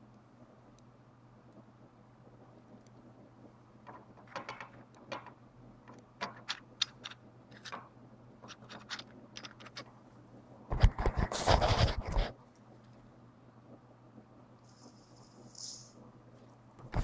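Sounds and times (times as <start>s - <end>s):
plastic toy clicks and rattles: 8.5s - 9.9s.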